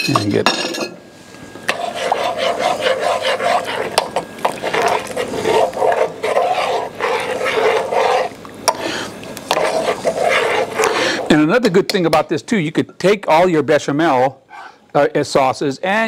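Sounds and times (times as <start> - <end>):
spoon scraping saucepan: 1.6 - 11.5.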